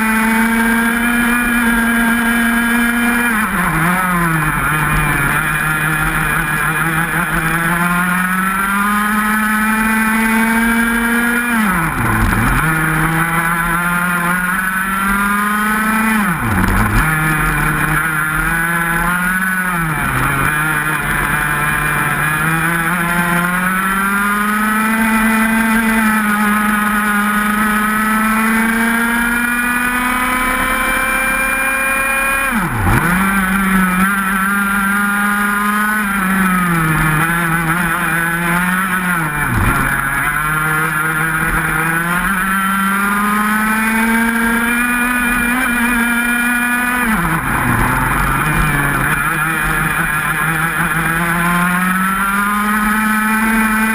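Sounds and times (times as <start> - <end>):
kart engine at high revs: 0.0 - 53.9.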